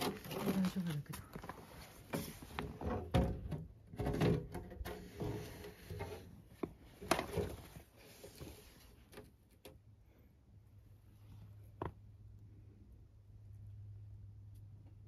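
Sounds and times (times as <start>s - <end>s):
knocks and scrapes: 0.0s - 9.8s.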